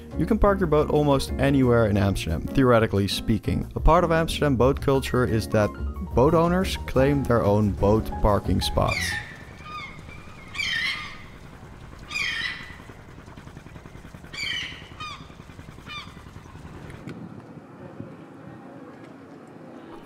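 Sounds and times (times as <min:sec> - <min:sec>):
low outdoor rumble: 0:05.9 - 0:20.0
bird calls: 0:08.6 - 0:17.0.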